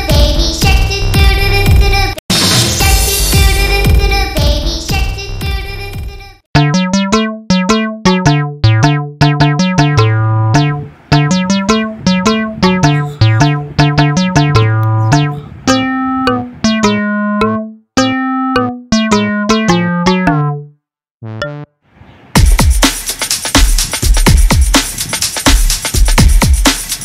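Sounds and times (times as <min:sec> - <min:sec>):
bass line: 0:06.6 - 0:21.7
electronic keyboard tune: 0:06.6 - 0:21.8.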